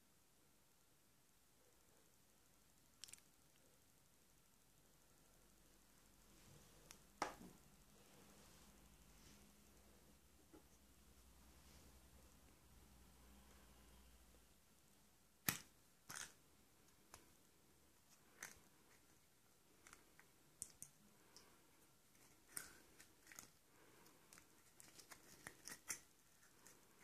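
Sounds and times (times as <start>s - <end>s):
paper rustling: 24.3s - 27.0s.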